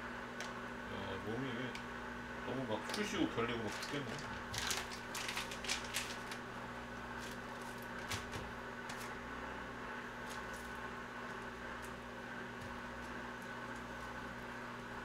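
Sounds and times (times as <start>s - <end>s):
steady low hum: 0.0s - 15.0s
dry noodles rustling and crackling: 2.8s - 9.2s.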